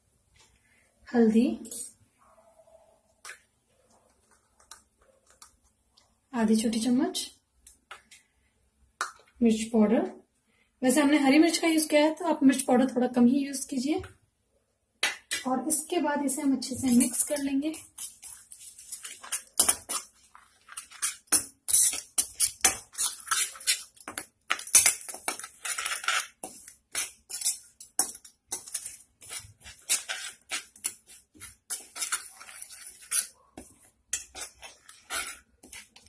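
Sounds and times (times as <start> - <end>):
spoon scraping metal pan: 16.9 - 24.0, 24.6 - 36.0.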